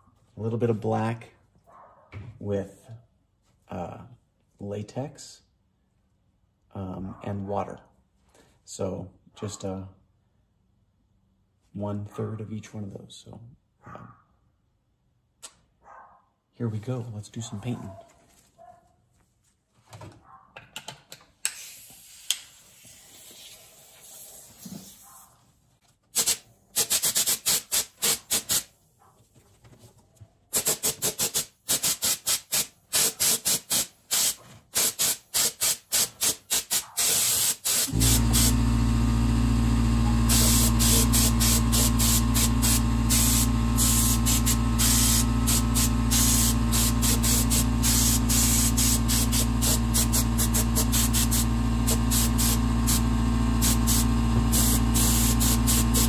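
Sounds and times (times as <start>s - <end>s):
spray gun hissing bursts: 21.6s - 24.6s, 26.2s - 28.7s, 30.6s - 38.7s, 40.3s - 56.0s
motor humming: 37.9s - 56.0s.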